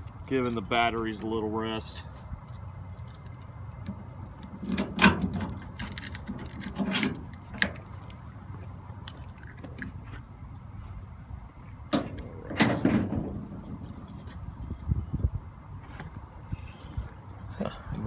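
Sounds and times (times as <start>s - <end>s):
keys jangling: 2.4s - 3.6s, 5.2s - 7.6s, 13.5s - 15.0s.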